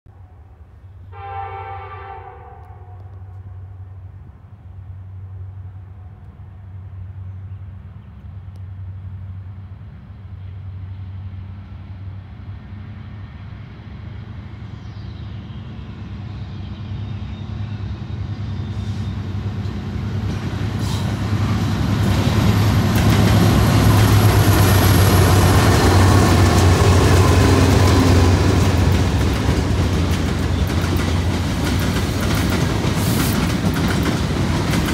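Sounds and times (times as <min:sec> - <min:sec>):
train wheel and rail noise: 0:00.1 - 0:34.9
locomotive air horn: 0:01.1 - 0:03.8.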